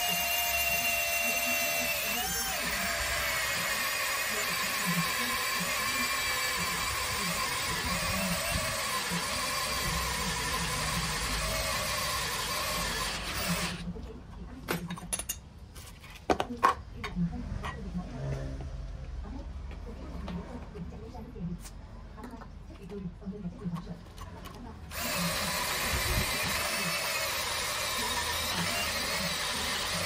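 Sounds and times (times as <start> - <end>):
small electric motor whining: 0.0 - 13.9, 24.9 - 30.0.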